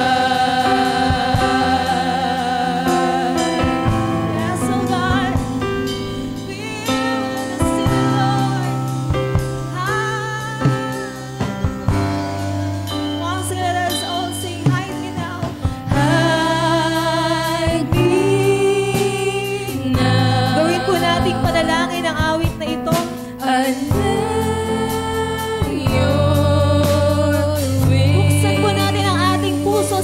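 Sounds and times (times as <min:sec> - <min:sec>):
backing singers: 0:00.0 - 0:12.0, 0:14.0 - 0:30.0
woman singing lead: 0:00.0 - 0:30.0
worship band playing gospel: 0:00.0 - 0:30.0.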